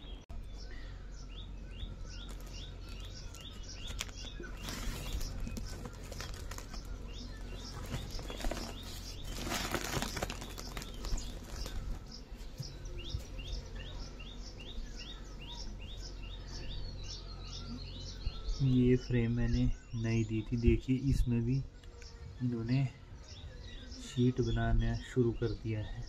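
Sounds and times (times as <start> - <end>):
bird chirping: 0.0 - 26.0
plastic sack rustling: 2.2 - 13.2.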